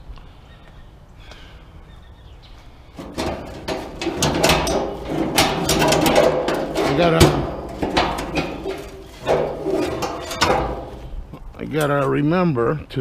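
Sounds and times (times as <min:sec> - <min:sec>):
metal grill grates clattering: 0:03.0 - 0:11.2.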